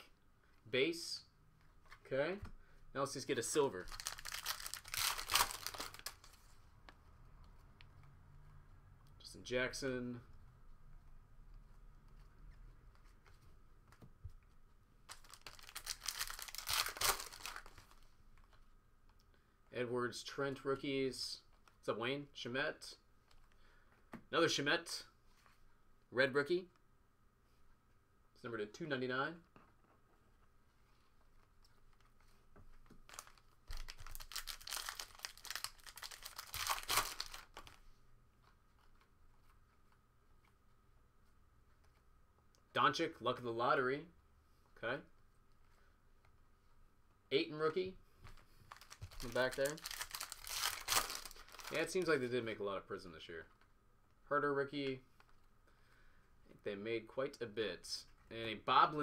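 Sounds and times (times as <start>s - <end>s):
foil wrapper tearing and crinkling: 3.9s - 6.3s, 15.1s - 17.8s, 33.1s - 37.8s, 48.7s - 51.9s.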